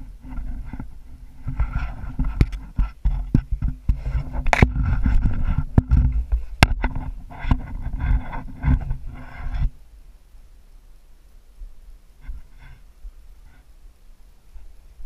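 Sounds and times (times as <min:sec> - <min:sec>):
camera rubbing against clothing: 0:00.0 - 0:09.8, 0:12.2 - 0:13.7.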